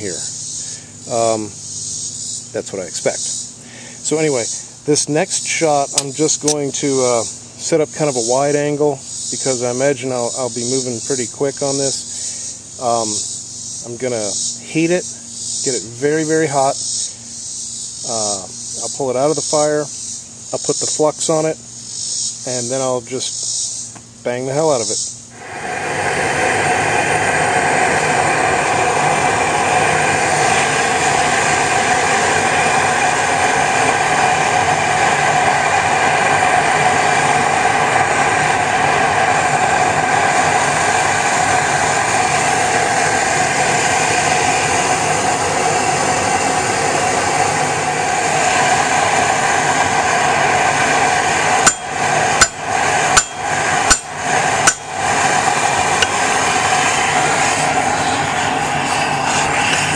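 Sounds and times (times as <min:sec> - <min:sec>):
forge burner roaring: 0:03.7 - 0:10.4, 0:25.3 - 0:59.9
hammer blows on steel: 0:51.4 - 0:55.2.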